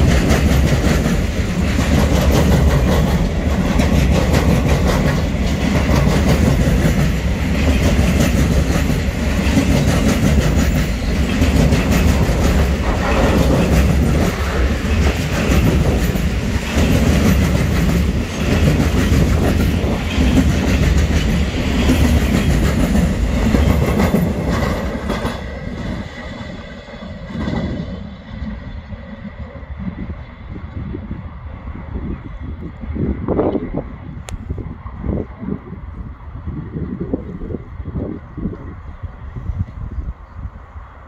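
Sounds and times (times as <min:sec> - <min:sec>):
train wheels clattering on rails: 0:00.0 - 0:30.2.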